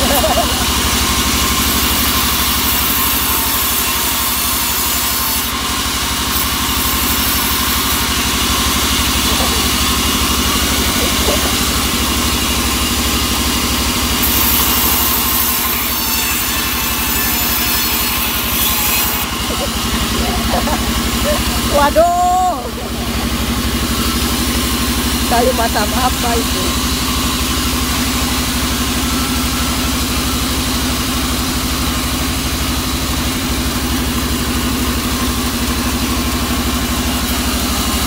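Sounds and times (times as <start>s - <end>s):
band saw blade hissing: 0.0s - 21.8s
sawmill low drone: 0.0s - 38.0s.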